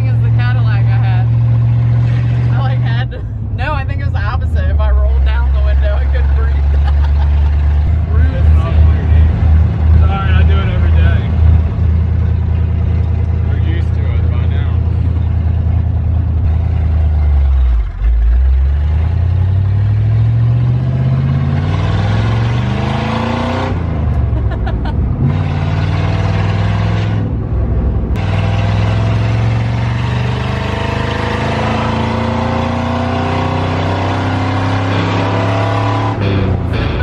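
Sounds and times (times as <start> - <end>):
loud truck engine accelerating: 0.0 - 37.0.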